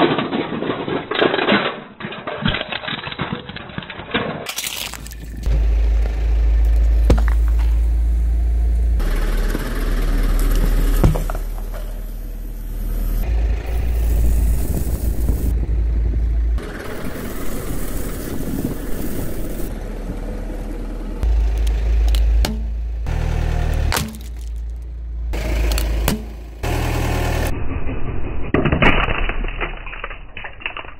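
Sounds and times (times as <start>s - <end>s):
metal can crunching: 0.0s - 5.5s, 23.7s - 24.9s, 25.5s - 26.4s
car engine rumbling: 4.7s - 27.7s.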